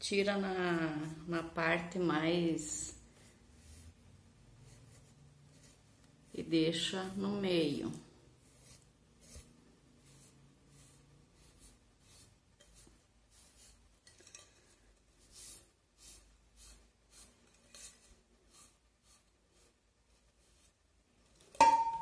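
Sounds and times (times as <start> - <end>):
cloth wiping strokes: 2.9 - 7.8, 8.4 - 13.9.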